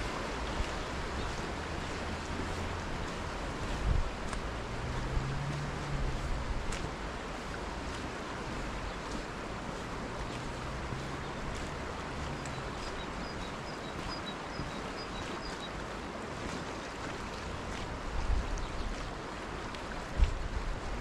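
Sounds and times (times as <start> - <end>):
wind gusts buffeting microphone: 0.0 - 13.5, 19.9 - 21.0
wind: 0.0 - 21.0.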